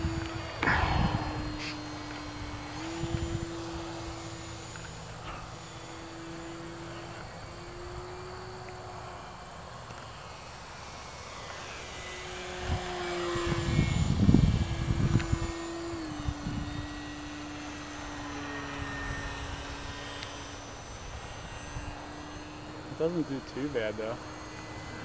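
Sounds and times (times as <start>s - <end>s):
model plane motor whining: 0.0s - 25.0s
low rumble: 0.6s - 3.3s.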